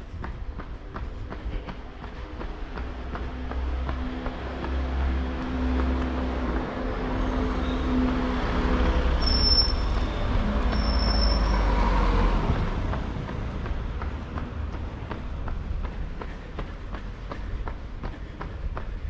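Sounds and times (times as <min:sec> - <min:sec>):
vehicle engine rumbling: 0:00.0 - 0:19.0
brief high squeaks: 0:09.2 - 0:10.0, 0:10.7 - 0:11.6.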